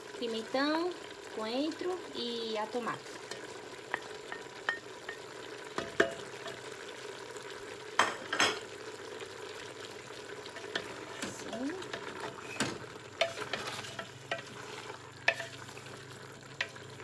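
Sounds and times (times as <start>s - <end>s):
meat sizzling in a pot: 0.0s - 17.0s
wooden spoon knocking on pot: 5.8s - 6.6s
spoon scraping pot: 10.5s - 16.8s.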